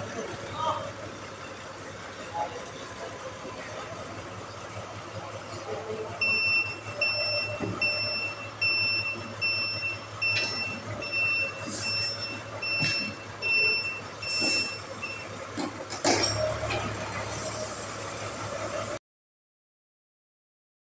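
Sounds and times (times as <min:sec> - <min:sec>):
low engine hum: 0:00.0 - 0:19.0
truck reversing alarm beeping: 0:00.0 - 0:19.0.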